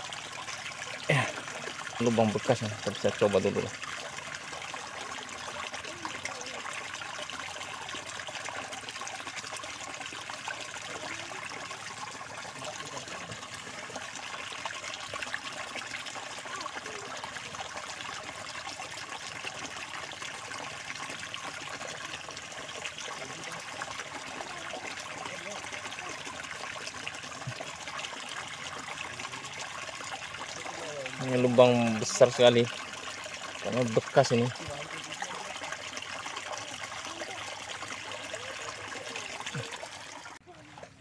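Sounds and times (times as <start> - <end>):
water trickling: 0.0 - 41.0.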